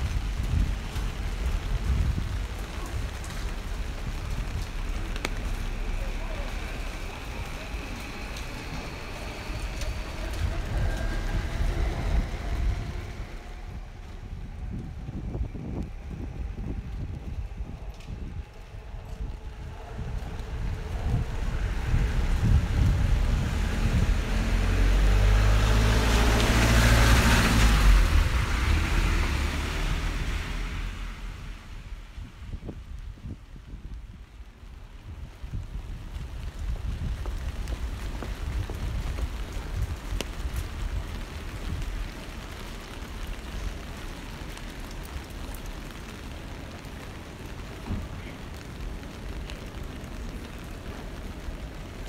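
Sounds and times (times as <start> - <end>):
tyres hissing on wet asphalt: 0.0 - 33.1
low rumble: 0.0 - 52.0.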